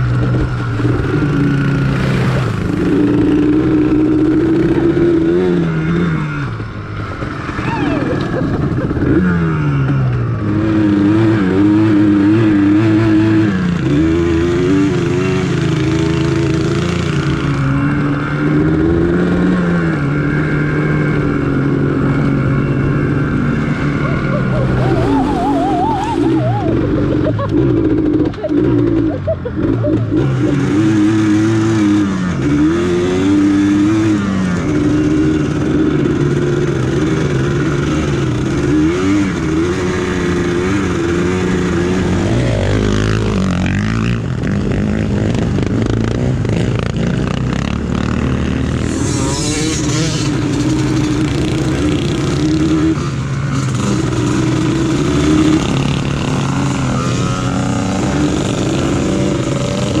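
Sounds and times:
quad bike engine revving: 0.0s - 60.0s.

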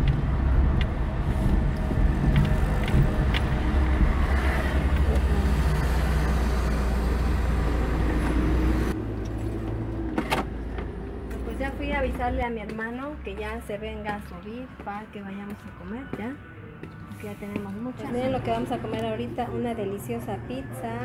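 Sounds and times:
car engine and road rumble: 0.0s - 13.4s.

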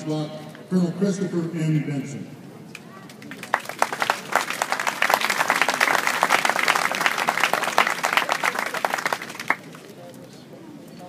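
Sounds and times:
audience applauding: 3.1s - 9.9s.

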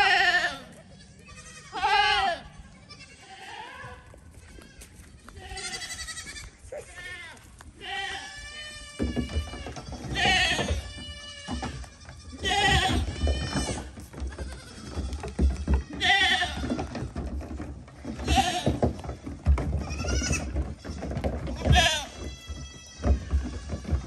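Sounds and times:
goat kids bleating: 0.0s - 17.2s, 18.0s - 24.0s
hooves thumping on boat hull: 9.0s - 24.0s.

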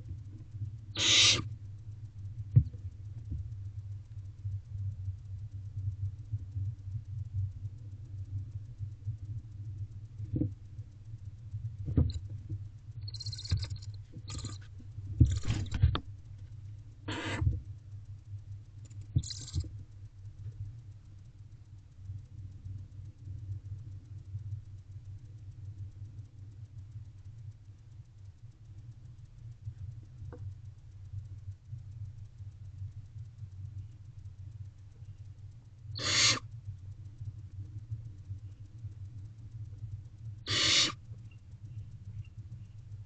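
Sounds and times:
low electrical hum: 0.0s - 43.0s
owlets hissing: 1.0s - 1.5s, 17.1s - 17.5s, 36.0s - 36.4s, 40.5s - 41.0s.

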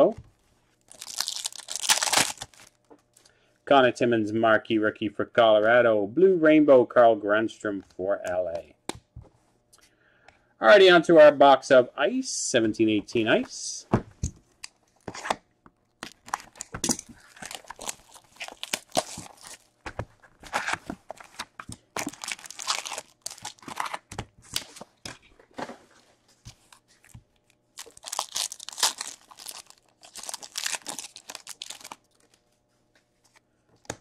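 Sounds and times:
cardboard and wrappers tearing: 0.9s - 2.8s, 16.0s - 19.8s, 20.4s - 24.8s, 27.8s - 32.4s.

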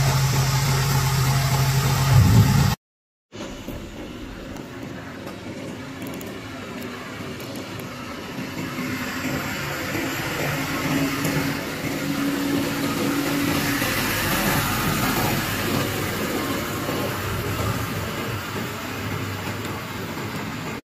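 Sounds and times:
diesel truck engine running: 0.0s - 2.8s, 7.9s - 20.6s.

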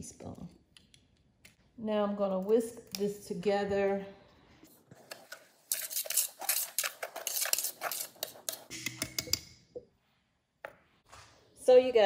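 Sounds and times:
whisk scraping in a pot: 5.0s - 8.7s.

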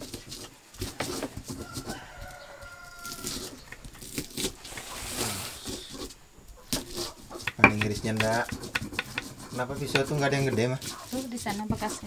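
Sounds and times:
rooster crowing: 1.5s - 3.8s
pestle grinding in stone mortar: 5.6s - 12.0s.

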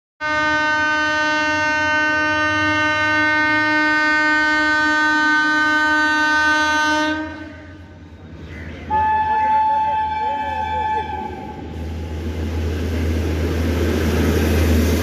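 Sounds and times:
locomotive horn blowing: 0.2s - 7.8s, 8.8s - 11.6s.

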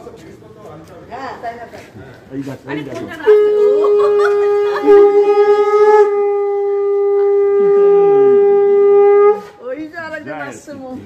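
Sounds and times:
conch shell blown: 3.2s - 9.6s.

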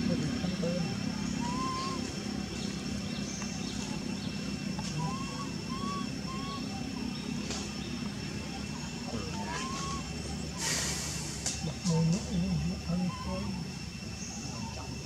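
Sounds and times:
short chirping animal calls: 0.6s - 2.1s, 4.8s - 7.5s, 8.5s - 11.9s.

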